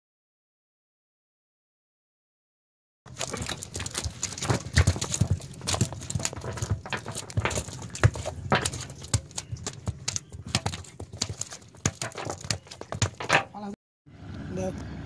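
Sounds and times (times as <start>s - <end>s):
fish slapping on wooden deck: 3.1s - 13.7s.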